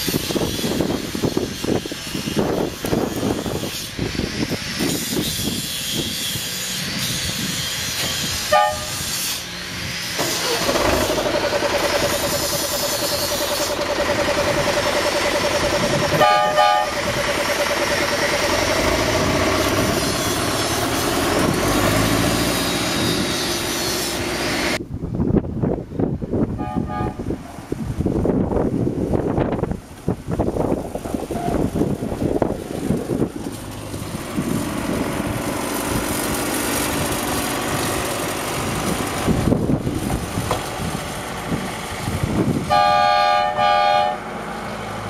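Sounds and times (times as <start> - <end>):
diesel locomotive engine running: 0.0 - 45.0
short horn toots: 8.5 - 9.1, 16.2 - 17.0, 26.6 - 27.3, 42.7 - 44.2.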